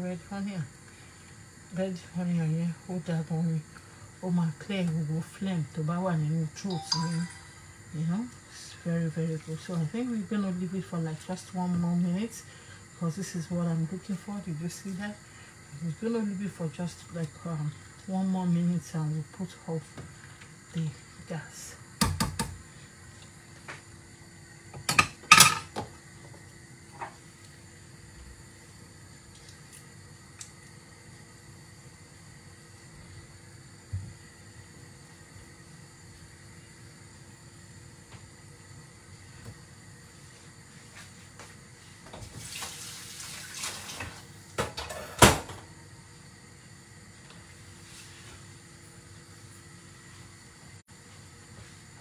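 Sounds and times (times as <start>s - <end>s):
watery hiss: 42.4s - 44.2s.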